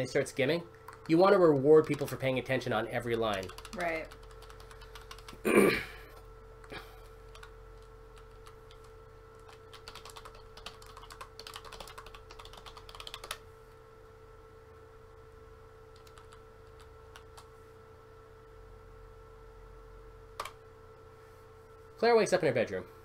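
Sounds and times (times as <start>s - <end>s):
faint steady hum: 0.0s - 23.0s
typing on computer keyboard: 0.9s - 2.4s, 3.1s - 5.4s, 7.3s - 13.4s, 15.9s - 17.5s.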